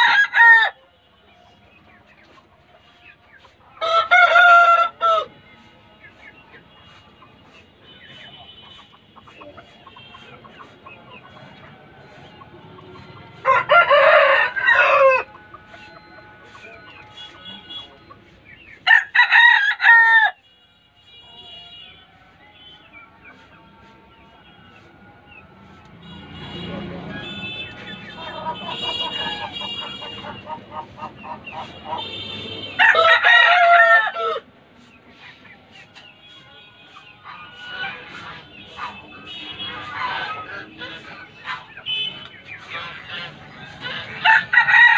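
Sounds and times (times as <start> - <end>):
rooster crowing: 0.0 - 0.8, 3.8 - 5.4, 13.4 - 15.4, 18.8 - 20.4, 32.8 - 34.5, 44.2 - 44.9
chickens clucking: 0.0 - 20.2, 22.1 - 44.9.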